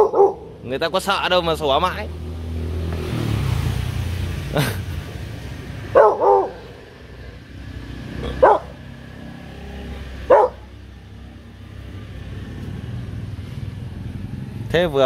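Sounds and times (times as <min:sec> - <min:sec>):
puppy barking: 0:00.0 - 0:00.5, 0:05.9 - 0:06.9, 0:08.2 - 0:08.9, 0:10.2 - 0:10.7
street traffic hum: 0:00.0 - 0:15.0.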